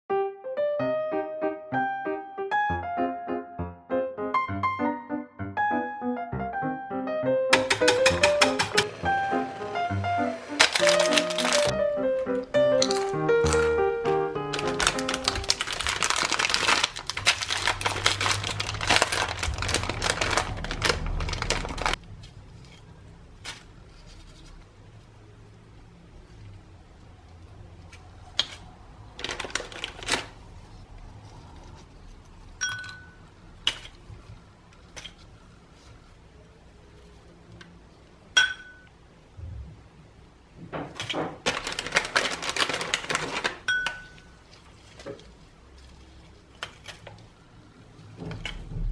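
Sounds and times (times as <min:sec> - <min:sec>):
plastic wrapper crinkling: 0:10.5 - 0:11.8, 0:12.4 - 0:24.8, 0:27.4 - 0:32.4, 0:41.4 - 0:47.4
knife tapping ringing glass bowl: 0:38.4 - 0:38.9.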